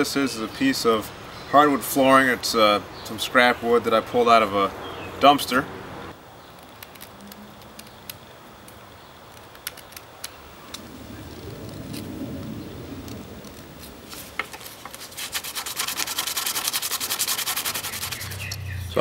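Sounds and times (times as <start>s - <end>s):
sandpaper rubbing wood: 14.1s - 18.6s
knife whittling wood: 14.2s - 18.7s.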